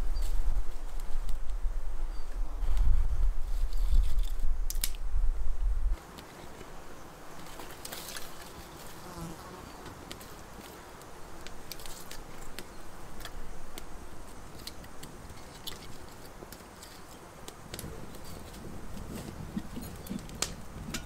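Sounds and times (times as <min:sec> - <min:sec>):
wood fire crackling: 0:00.0 - 0:08.9, 0:09.9 - 0:21.0
insect buzzing: 0:05.3 - 0:15.0.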